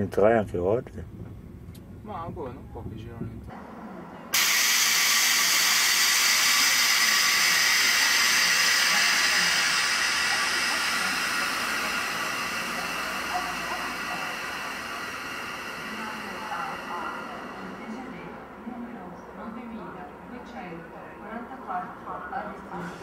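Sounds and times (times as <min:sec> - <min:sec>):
loud hiss from high-speed train: 0:04.3 - 0:18.6.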